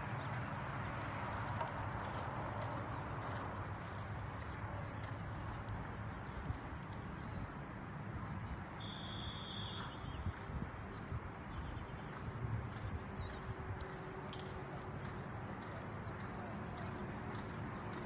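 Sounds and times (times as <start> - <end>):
horse hoofbeats on sand: 0.0 - 7.6, 9.3 - 18.0
steady outdoor hiss: 0.0 - 18.0
bird chirp: 7.2 - 13.5
bird whistle: 8.8 - 10.3.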